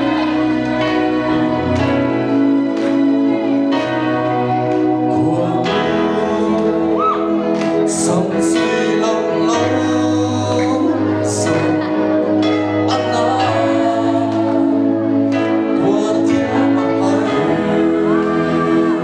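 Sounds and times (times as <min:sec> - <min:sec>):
man singing into microphone: 0:05.0 - 0:19.0.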